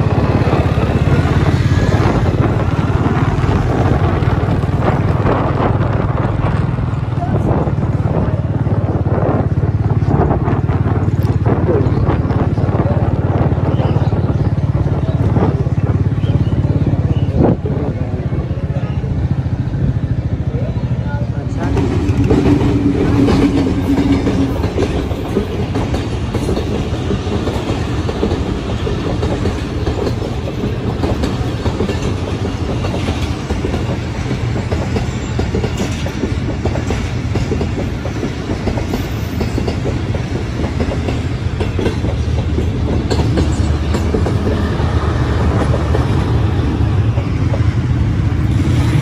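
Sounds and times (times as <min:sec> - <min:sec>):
wind noise on microphone: 0:00.0 - 0:18.5.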